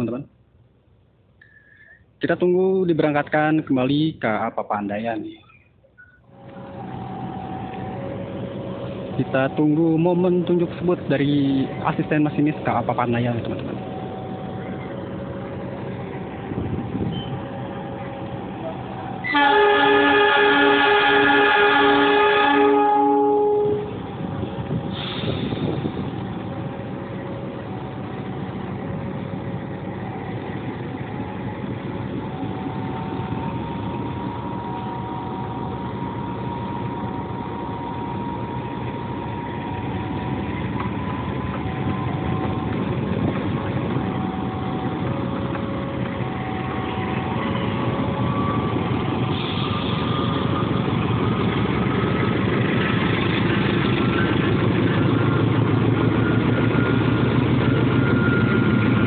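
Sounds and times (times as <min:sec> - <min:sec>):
diesel locomotive engine: 0:00.0 - 0:59.0
level-crossing alarm: 0:32.3 - 0:43.2, 0:43.8 - 0:50.9, 0:55.0 - 0:59.0.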